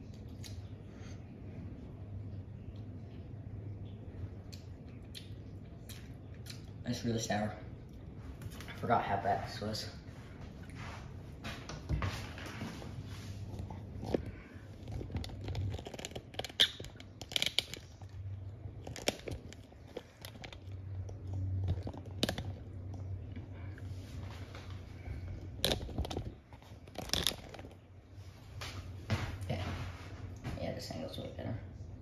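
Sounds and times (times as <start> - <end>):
faint low hum: 0.0 - 32.0
person chewing: 4.3 - 6.8, 13.4 - 27.9.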